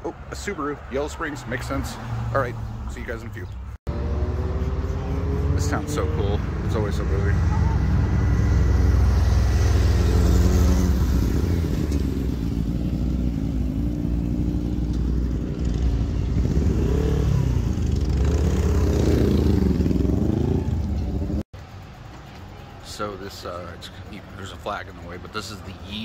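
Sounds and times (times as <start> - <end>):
motorcycles riding past: 3.9 - 23.0.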